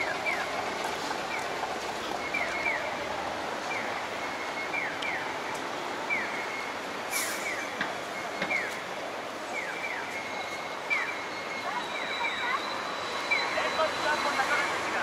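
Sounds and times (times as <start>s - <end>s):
city street traffic: 0.0s - 15.0s
brief hiss: 7.1s - 7.7s.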